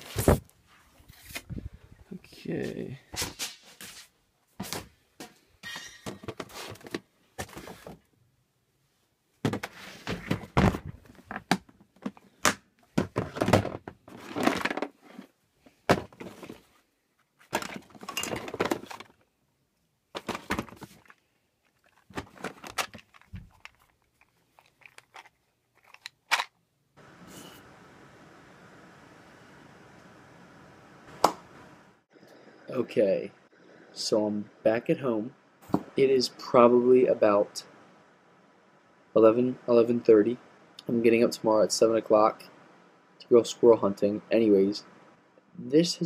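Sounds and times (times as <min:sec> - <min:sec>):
items clattering in plastic tote: 0:13.0 - 0:15.3, 0:17.4 - 0:19.2, 0:20.1 - 0:26.5.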